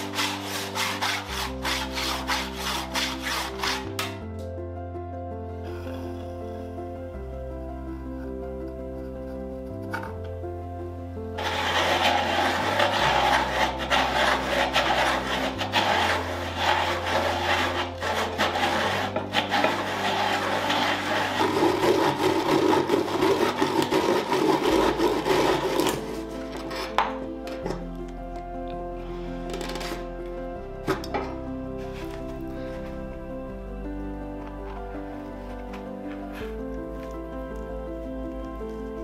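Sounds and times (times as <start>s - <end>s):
hole saw grinding through wood: 0.0s - 4.2s, 11.4s - 27.2s.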